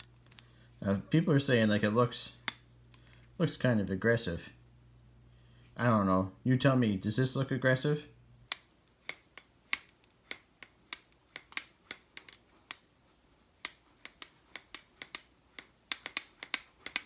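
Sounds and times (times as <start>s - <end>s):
pocketknife clicking open and shut: 13.6s - 17.0s.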